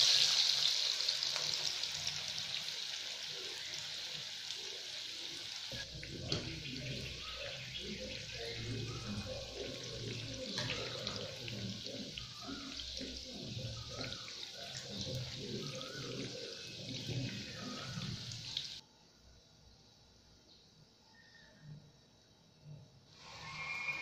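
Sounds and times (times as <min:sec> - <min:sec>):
food deep-frying in oil: 0:00.0 - 0:18.8.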